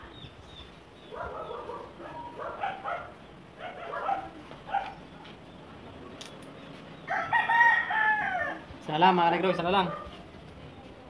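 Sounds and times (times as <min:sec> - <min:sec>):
dog barking: 0:01.1 - 0:05.0, 0:09.4 - 0:10.3.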